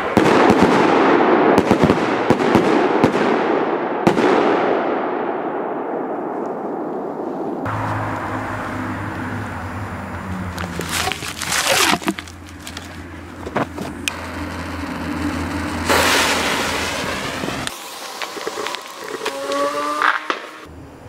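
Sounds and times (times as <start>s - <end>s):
rustling and handling noise: 10.5s - 14.0s
steady low hum: 12.3s - 18.1s
firework fuse hissing: 13.9s - 20.7s.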